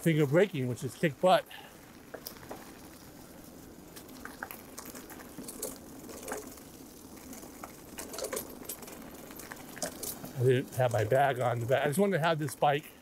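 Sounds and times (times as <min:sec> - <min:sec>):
bike tyres rolling over leaves: 0:00.0 - 0:13.0
small crackles and ticks: 0:00.0 - 0:13.0.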